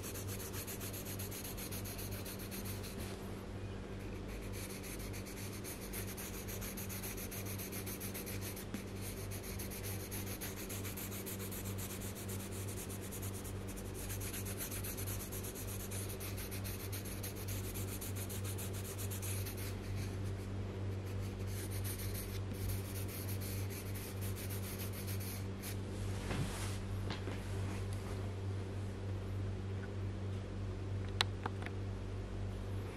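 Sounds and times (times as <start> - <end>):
pencil scratching on paper: 0.0 - 3.1, 4.0 - 20.4, 21.0 - 25.8.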